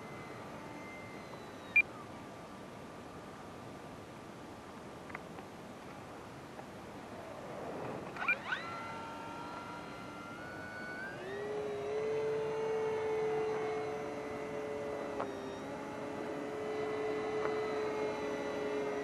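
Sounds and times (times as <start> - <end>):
model plane electric motor whine: 0.0 - 1.8, 7.0 - 19.0.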